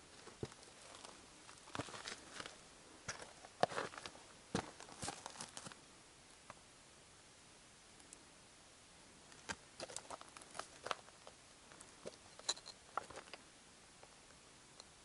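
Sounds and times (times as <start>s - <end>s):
footsteps on gravel: 0.2s - 5.7s.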